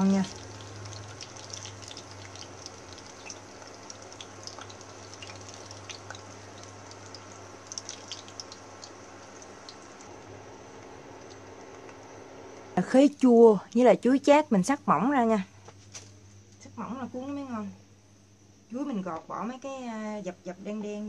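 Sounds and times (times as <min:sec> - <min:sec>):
food sizzling in oil: 0:00.0 - 0:10.6.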